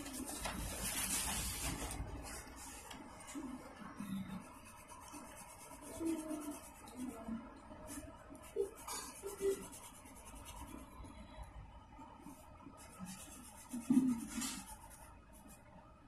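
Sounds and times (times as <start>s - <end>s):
pencil scratching on paper: 4.4s - 7.2s, 7.9s - 10.9s, 12.8s - 15.6s.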